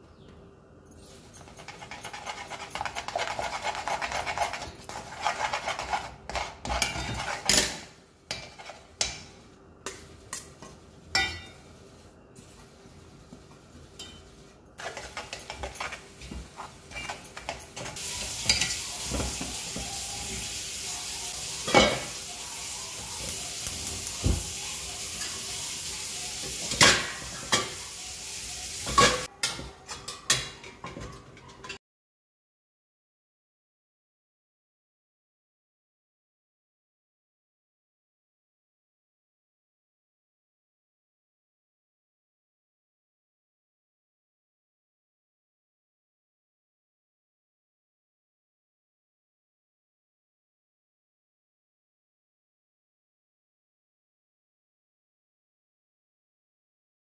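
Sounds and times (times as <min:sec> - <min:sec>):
metal spoon scraping a pan: 0:01.0 - 0:12.7, 0:13.7 - 0:20.5, 0:24.9 - 0:31.8
steady sizzle: 0:01.6 - 0:29.3.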